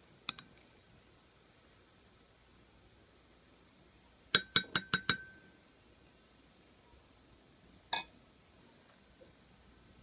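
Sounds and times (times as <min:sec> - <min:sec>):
plastic spoon tapping porcelain bowl: 0:04.4 - 0:05.4, 0:07.9 - 0:08.1.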